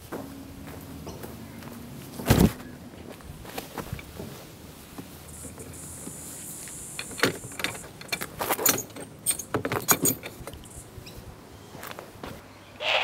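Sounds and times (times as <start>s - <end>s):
steady high hiss: 3.4s - 8.2s
pet carrier wire door rattling: 7.0s - 10.6s.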